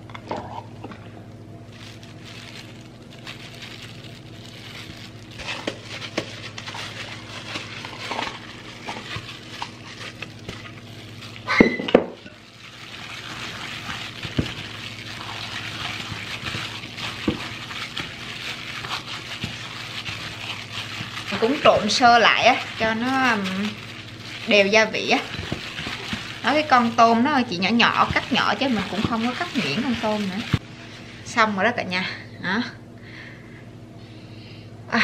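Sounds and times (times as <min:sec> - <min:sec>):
wet squelching of mixing: 0:01.7 - 0:31.4
gloved hands scraping filling: 0:12.4 - 0:27.2, 0:27.8 - 0:30.6.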